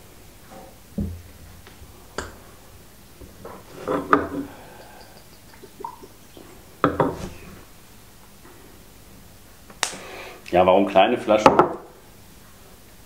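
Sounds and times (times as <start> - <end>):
liquid pouring into a glass: 4.1 - 7.6.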